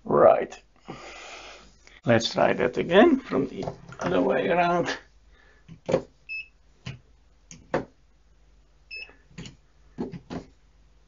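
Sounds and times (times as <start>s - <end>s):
multimeter electronic beep: 8.9s - 9.2s.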